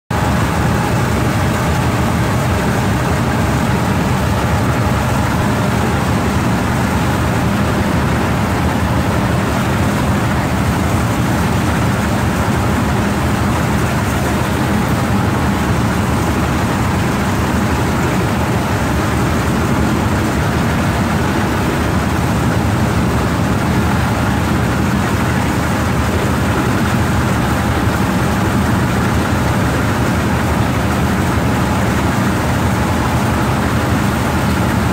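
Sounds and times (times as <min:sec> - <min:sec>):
rice thresher running: 0:00.1 - 0:34.9.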